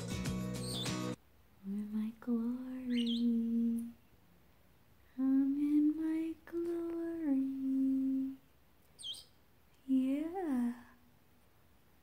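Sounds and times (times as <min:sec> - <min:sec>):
parrot chirp: 0:00.5 - 0:01.2, 0:02.9 - 0:03.4, 0:08.9 - 0:09.4.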